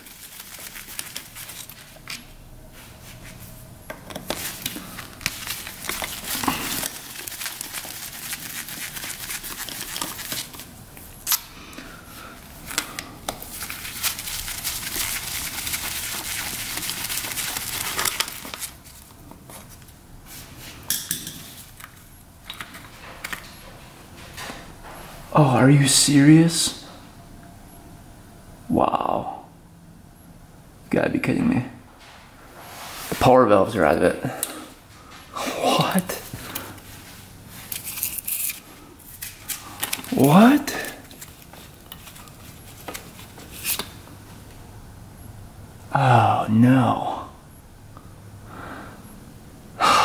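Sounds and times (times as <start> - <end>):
rustling and scraping of tools: 0.0 - 25.6, 31.9 - 44.6
metal parts clicking and clinking: 37.7 - 40.2.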